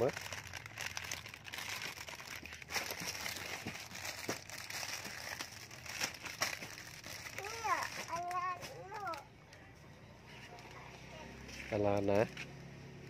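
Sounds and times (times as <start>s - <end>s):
plastic packaging crinkling: 0.0s - 9.6s.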